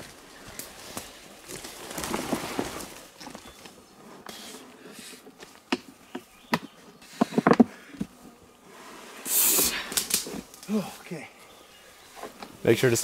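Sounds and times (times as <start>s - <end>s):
leaves and stems rustling: 0.0s - 5.6s
sled dragged through brush: 0.0s - 5.6s, 8.6s - 10.6s
sharp cracks and knocks: 9.6s - 10.7s.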